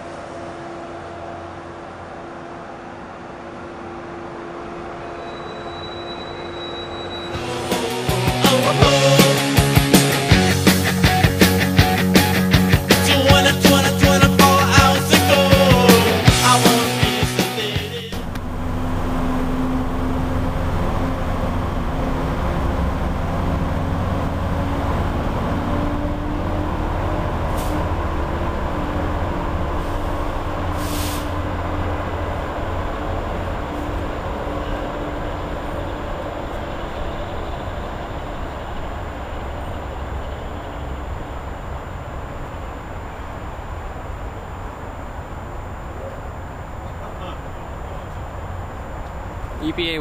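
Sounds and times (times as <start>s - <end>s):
diesel locomotive rumbling: 0.0s - 50.0s
rock music: 7.4s - 18.3s
short air hisses: 27.5s - 27.8s, 30.7s - 31.4s.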